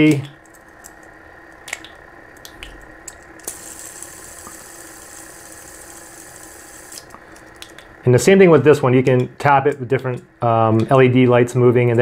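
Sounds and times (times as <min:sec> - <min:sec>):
fidget spinner whirring: 0:02.4 - 0:09.9.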